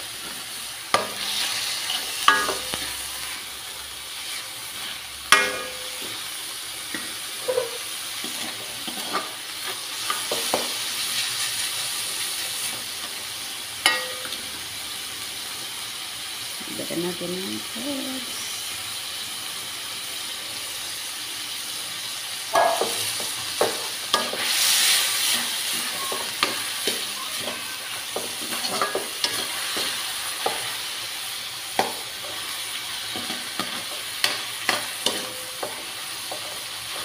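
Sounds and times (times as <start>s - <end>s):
spatula scraping a wok: 0.0s - 11.6s, 22.5s - 37.0s
meat sizzling in oil: 0.0s - 37.0s.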